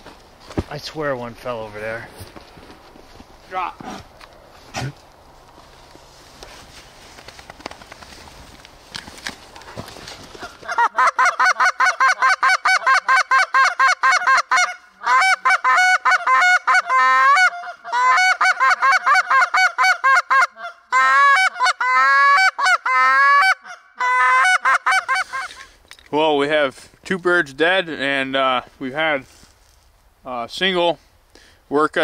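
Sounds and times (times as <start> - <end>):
goose call clucks and honks: 10.4 - 25.7.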